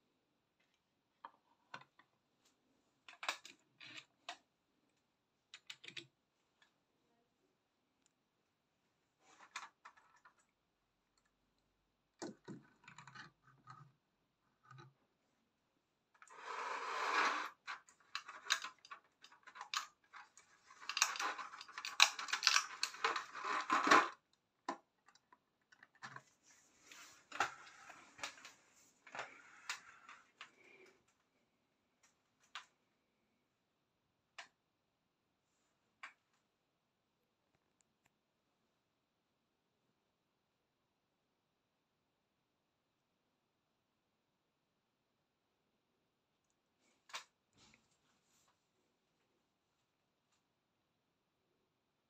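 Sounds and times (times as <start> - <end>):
toys scraping and clattering: 16.2 - 24.2
toy buses clicking on tabletop: 16.2 - 26.3.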